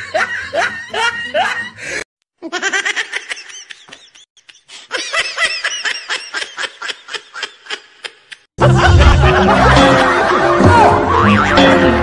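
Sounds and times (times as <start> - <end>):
high-pitched giggling: 2.4 - 9.8.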